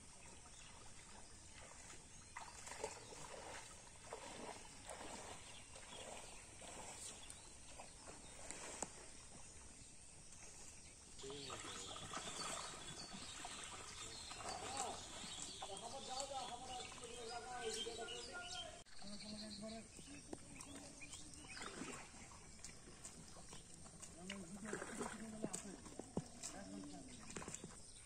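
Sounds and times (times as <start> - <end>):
distant voices: 11.2 - 27.4.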